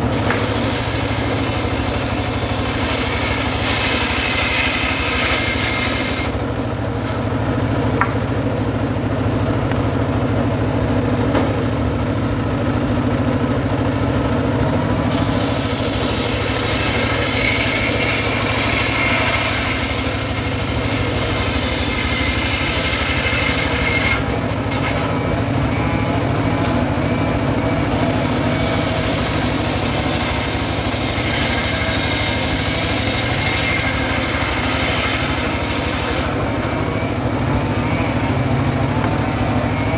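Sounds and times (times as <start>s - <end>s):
circular saw ripping wood: 0.0s - 6.4s, 15.1s - 25.2s, 28.2s - 36.7s
engine drone: 0.0s - 39.9s.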